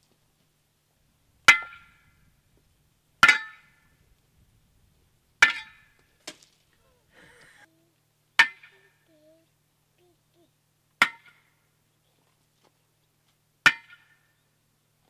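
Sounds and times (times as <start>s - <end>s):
sledgehammer clanging on metal post: 1.5s - 2.1s, 3.2s - 3.9s, 5.4s - 6.0s, 13.7s - 14.3s.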